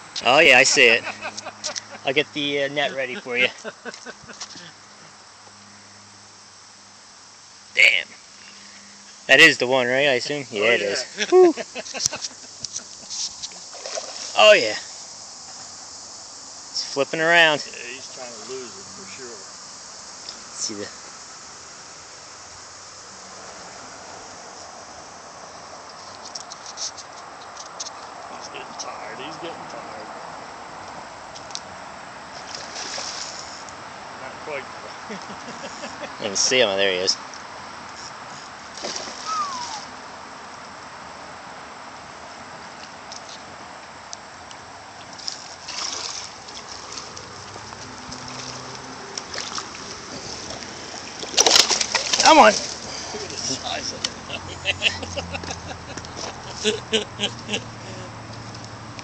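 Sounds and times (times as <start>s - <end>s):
creek water trickling: 0.0s - 41.0s, 42.0s - 58.9s
steady outdoor hiss: 0.0s - 59.0s
fish splashing in water: 13.5s - 14.4s, 32.4s - 33.4s, 38.7s - 39.9s, 45.2s - 53.4s.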